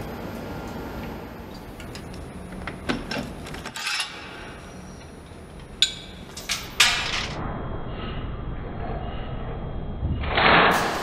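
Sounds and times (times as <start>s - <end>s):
factory hum: 0.0s - 11.0s.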